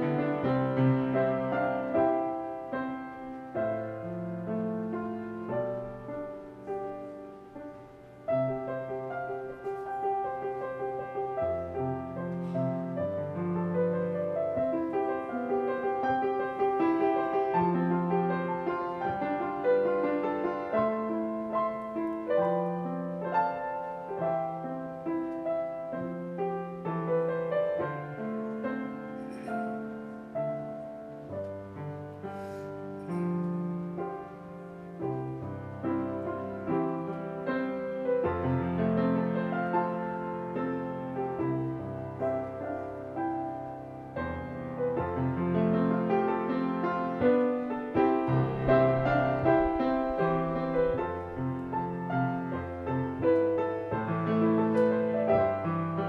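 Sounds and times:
solo piano: 0.0 - 56.0.

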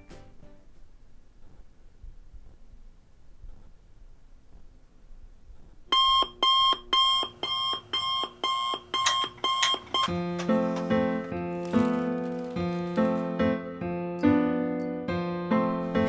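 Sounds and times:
alarm clock beeping: 5.9 - 10.2
soft keyboard music: 9.0 - 16.0.

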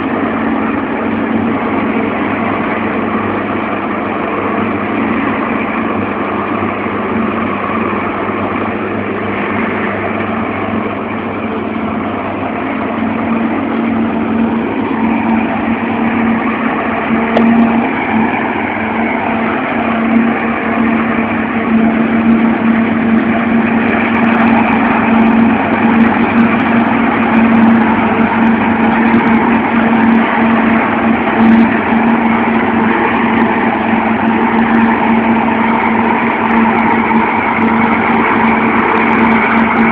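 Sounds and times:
constant hum: 0.0 - 39.9
tractor diesel engine: 0.0 - 39.9
forage harvester chopping: 16.2 - 18.9.

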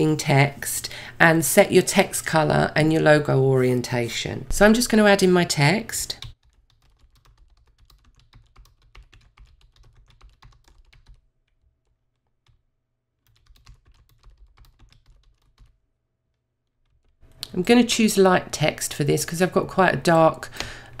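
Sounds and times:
typing on computer keyboard: 6.2 - 12.6, 13.2 - 15.8, 16.7 - 17.2.

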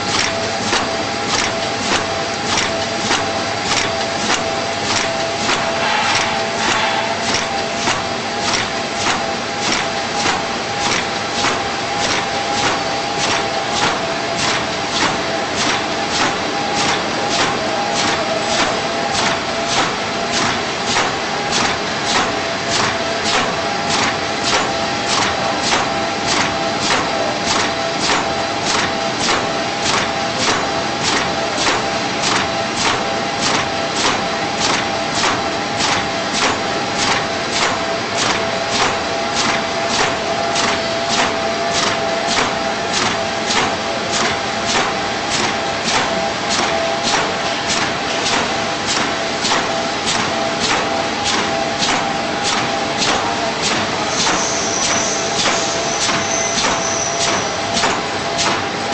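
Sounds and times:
screen printer clacking: 0.0 - 58.9
mechanical hiss and whine: 39.0 - 58.9.

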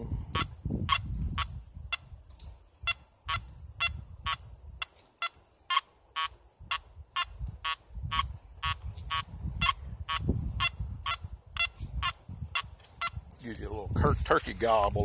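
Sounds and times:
metal detector beeping: 2.8 - 13.2.

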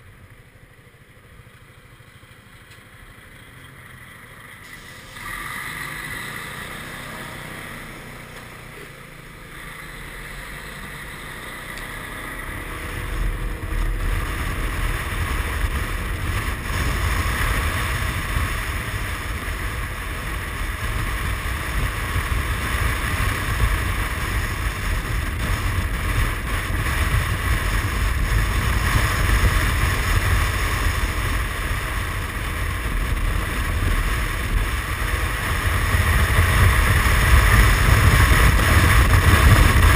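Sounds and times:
scooter engine running: 0.0 - 39.9
wind noise on microphone: 12.8 - 39.9.

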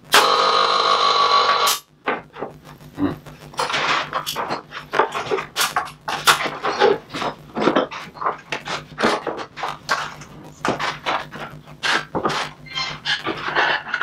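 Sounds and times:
low steady hum: 0.0 - 14.0
wooden parts knocking and scraping: 3.6 - 14.0.

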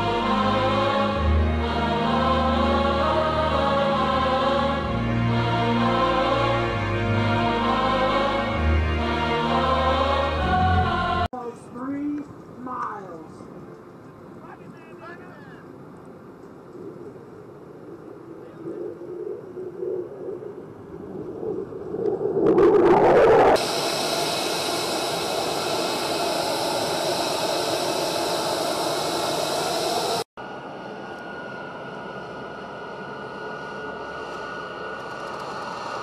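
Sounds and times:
turboprop engines droning: 0.0 - 36.0
jet engines high whine: 13.3 - 36.0
fighter jet flying past: 20.2 - 30.2.

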